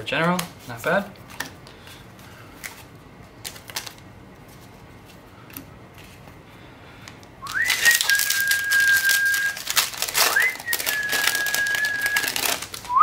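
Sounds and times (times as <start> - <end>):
foil wrapper tearing and crinkling: 7.4 - 13.0.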